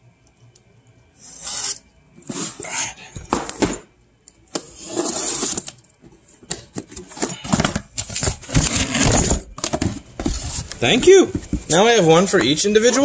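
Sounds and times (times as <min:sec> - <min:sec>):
cardboard scraping and rustling: 0:04.7 - 0:05.7, 0:06.9 - 0:12.6.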